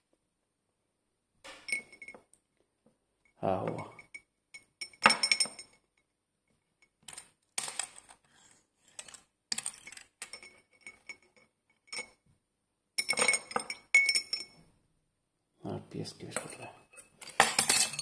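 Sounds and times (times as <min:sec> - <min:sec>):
jewellery clinking against glass: 0:01.5 - 0:02.3, 0:03.6 - 0:05.9, 0:08.9 - 0:12.2, 0:13.0 - 0:14.6, 0:16.3 - 0:18.0.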